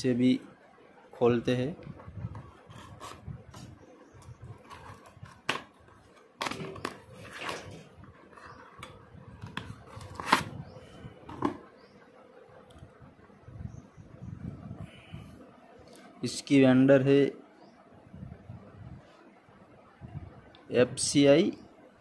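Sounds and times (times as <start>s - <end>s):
cardboard rustling: 9.5s - 10.6s.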